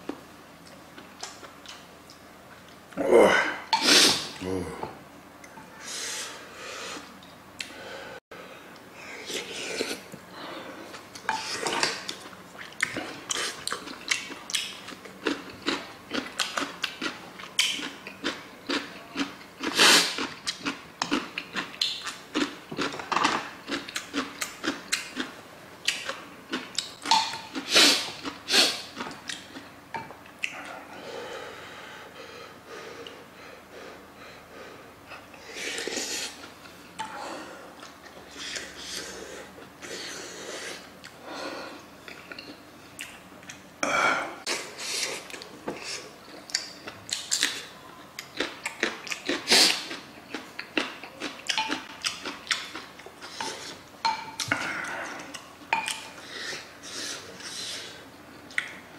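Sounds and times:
breathing: 0:07.7 - 0:09.1, 0:30.7 - 0:35.6.

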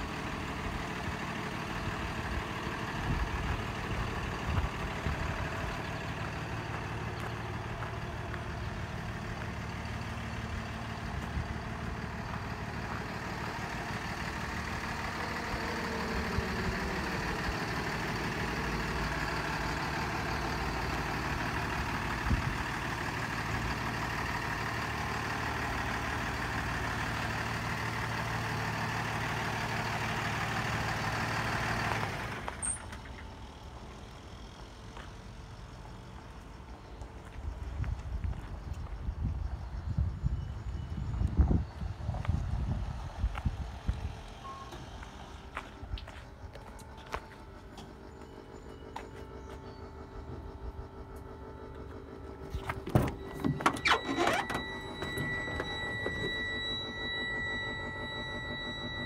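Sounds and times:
diesel truck engine idling: 0:00.0 - 0:59.0
low hum: 0:32.4 - 0:59.0
high electronic warning tone: 0:45.8 - 0:59.0.

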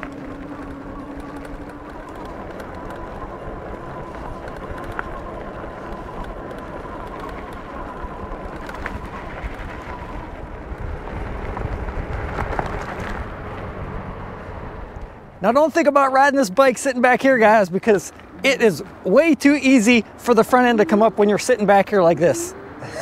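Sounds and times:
electric motor whine: 0:00.0 - 0:12.0
wind and tyre rumble: 0:00.0 - 0:23.0.

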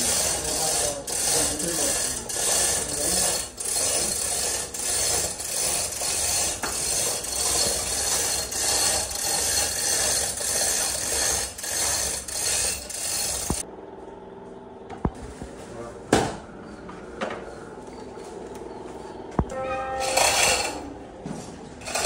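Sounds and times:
chain hoist ratcheting: 0:00.0 - 0:13.6, 0:20.0 - 0:20.8.

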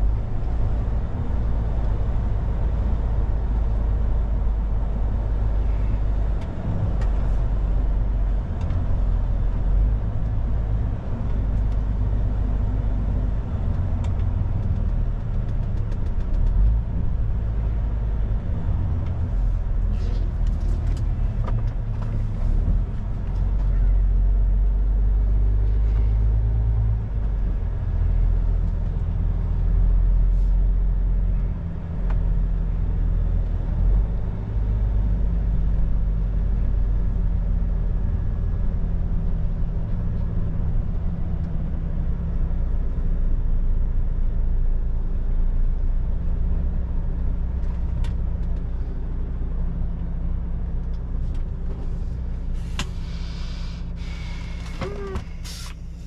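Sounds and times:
truck diesel engine running: 0:51.2 - 0:56.0
short hiss: 0:52.6 - 0:56.0.

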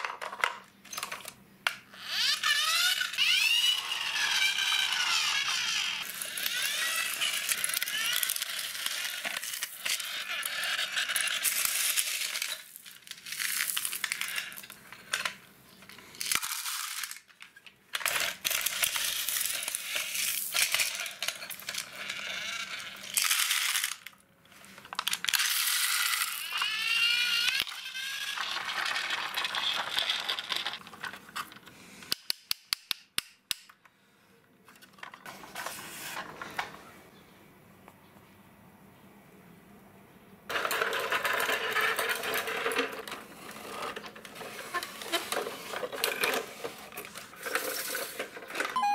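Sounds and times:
small stones scraping and rattling: 0:24.7 - 0:31.6, 0:40.5 - 0:48.8.

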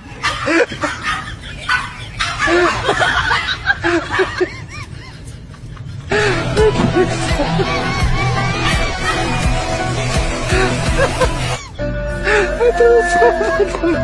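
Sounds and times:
dog yelping and grunting: 0:00.0 - 0:05.2, 0:06.9 - 0:09.4.

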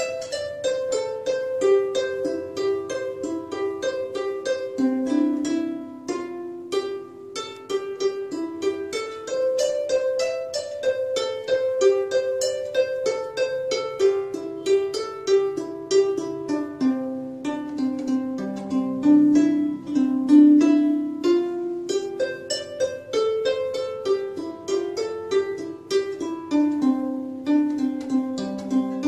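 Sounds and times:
plucked string melody: 0:00.0 - 0:29.0.

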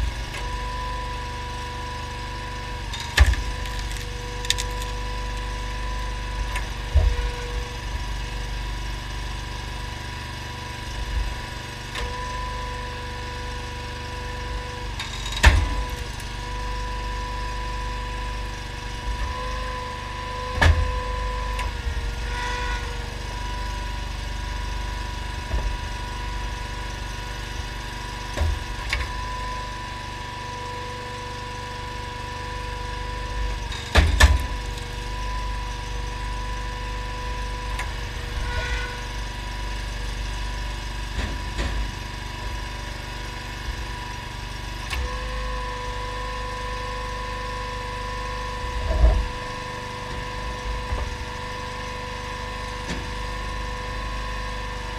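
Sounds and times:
engine running with whine: 0:00.0 - 0:54.9
wood cracking as it splits: 0:03.0 - 0:06.1.

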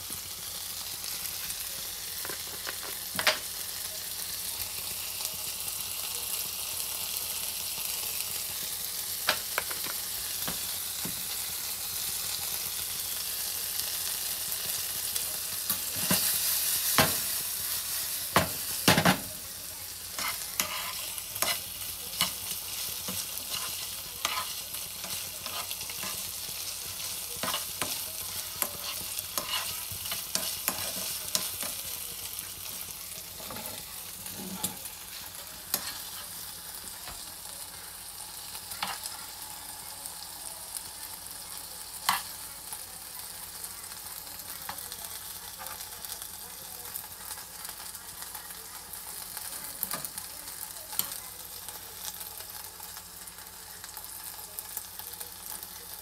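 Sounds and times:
meatballs sizzling in oil: 0:00.0 - 0:56.0
metal utensil scraping pan: 0:20.2 - 0:21.6.

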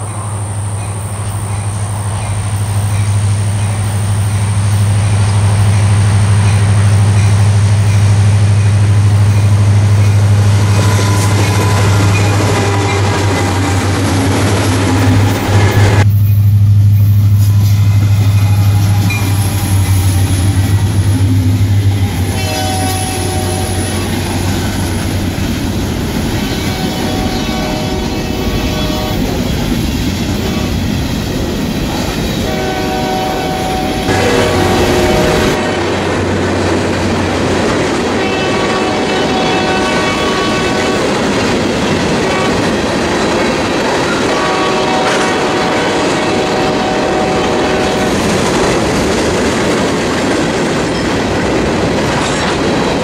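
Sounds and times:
train wheels clacking: 0:00.0 - 0:32.6, 0:33.4 - 0:53.0
diesel locomotive passing: 0:00.0 - 0:53.0
train horn: 0:10.3 - 0:24.6, 0:26.4 - 0:29.6, 0:30.3 - 0:30.9, 0:32.4 - 0:36.0, 0:38.1 - 0:41.3, 0:42.2 - 0:42.8, 0:44.0 - 0:48.4.

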